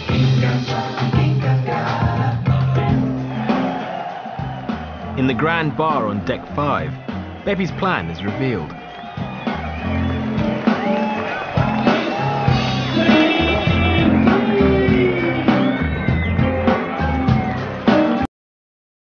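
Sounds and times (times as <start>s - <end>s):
person singing: 0.0s - 3.2s, 12.7s - 18.3s
music with bass line and melody: 0.0s - 18.3s.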